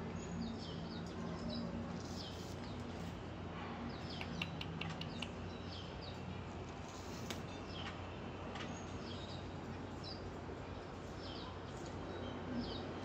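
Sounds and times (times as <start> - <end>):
small birds chirping: 0.1 - 3.2, 3.8 - 13.0
sharp ticks: 4.1 - 5.4.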